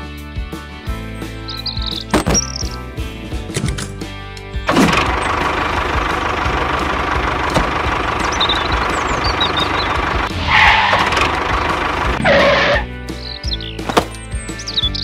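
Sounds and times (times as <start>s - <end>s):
vehicle engine running: 4.6s - 15.0s.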